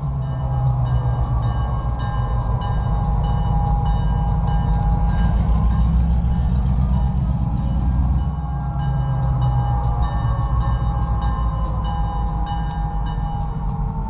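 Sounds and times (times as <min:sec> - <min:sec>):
diesel locomotive engine rumbling: 0:00.0 - 0:14.0.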